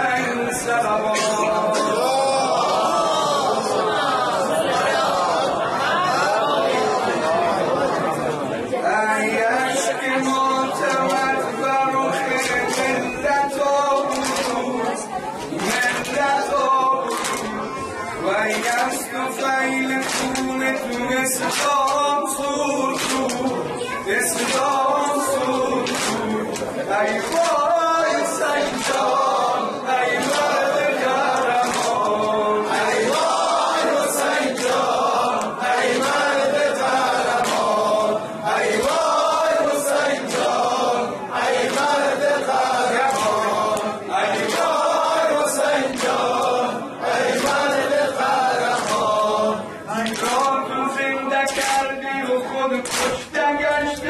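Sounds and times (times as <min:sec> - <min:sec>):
man chanting into a microphone: 0:00.0 - 0:02.7, 0:08.8 - 0:34.5, 0:44.8 - 0:54.0
hands slapping chests: 0:14.0 - 0:14.6, 0:17.1 - 0:17.5, 0:20.0 - 0:22.0, 0:22.9 - 0:23.6, 0:25.8 - 0:27.6, 0:28.6 - 0:29.1, 0:31.6 - 0:32.2, 0:37.3 - 0:37.7, 0:43.0 - 0:44.8, 0:45.8 - 0:46.5, 0:48.7 - 0:49.2, 0:50.0 - 0:50.6, 0:51.5 - 0:51.9, 0:52.8 - 0:53.3.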